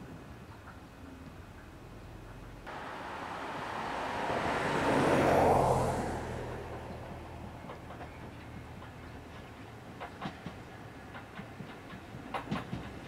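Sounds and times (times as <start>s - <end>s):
car passing by: 2.7s - 9.4s.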